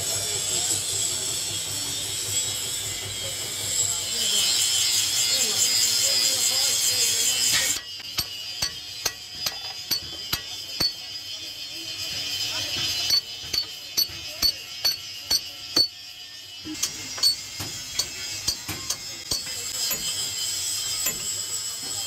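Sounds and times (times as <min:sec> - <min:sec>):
ratchet wrench clicking: 0:05.7 - 0:21.7.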